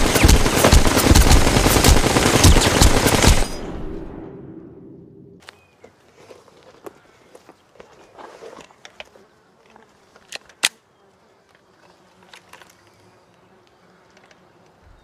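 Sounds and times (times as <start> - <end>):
faint insects buzzing: 5.4 - 15.0.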